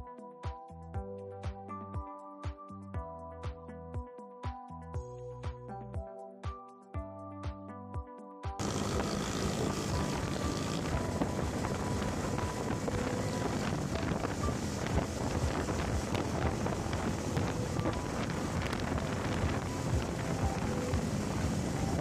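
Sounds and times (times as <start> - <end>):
motorcycle engine: 8.6 - 15.0
road noise: 8.6 - 22.0
wind buffeting microphone: 8.6 - 22.0.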